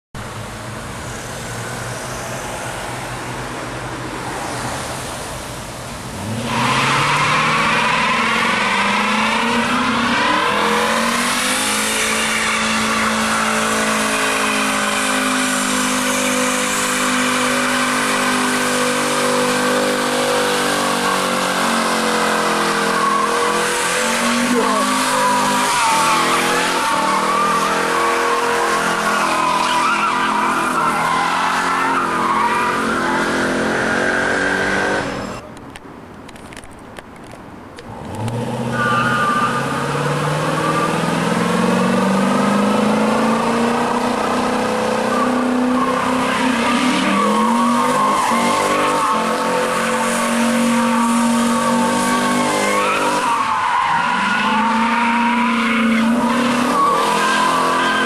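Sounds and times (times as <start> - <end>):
car engine revving: 6.1 - 35.4, 37.9 - 58.0
tyres squealing: 6.4 - 35.4, 43.7 - 58.0.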